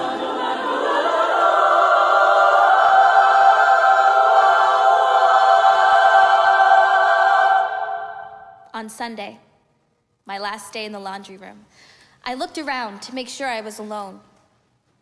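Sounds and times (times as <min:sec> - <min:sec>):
women's choir singing a chord: 0:00.0 - 0:08.6.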